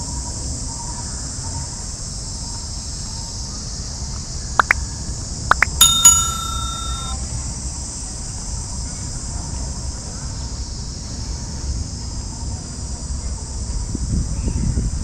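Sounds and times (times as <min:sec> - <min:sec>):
bright bell ding: 0:05.5 - 0:07.2.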